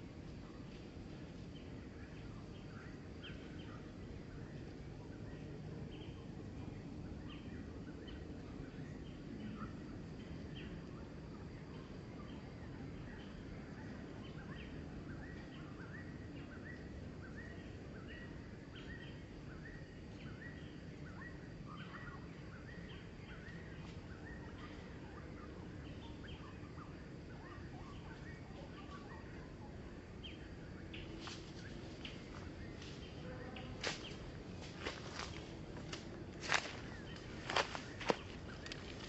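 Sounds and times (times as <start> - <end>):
outdoor background noise: 0.0 - 39.0
bird chirping: 14.0 - 39.0.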